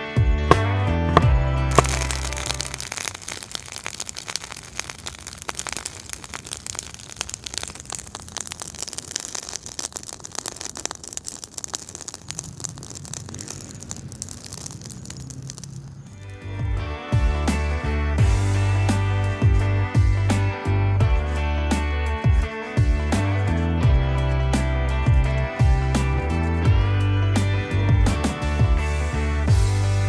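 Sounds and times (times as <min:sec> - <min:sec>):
fire crackling: 0:00.5 - 0:20.3
meat sizzling: 0:01.7 - 0:16.6.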